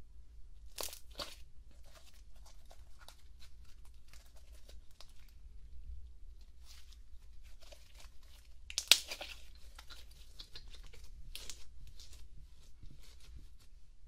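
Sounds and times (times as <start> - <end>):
slime squished by hand: 6.4 - 13.4.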